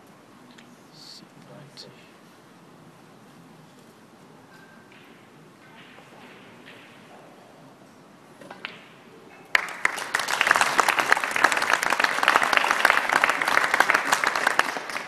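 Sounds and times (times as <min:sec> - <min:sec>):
cue and balls clicking: 0:03.7 - 0:09.1
audience applauding: 0:09.5 - 0:15.0.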